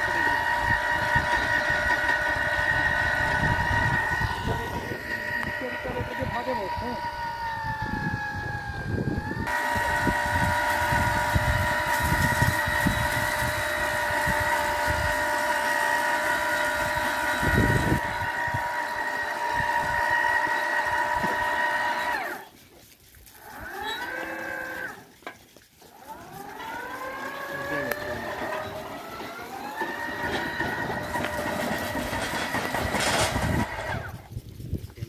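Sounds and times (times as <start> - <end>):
whine bending in pitch: 0.0 - 22.4
electric motor whining under load: 0.0 - 22.5, 23.4 - 25.0, 25.9 - 34.2.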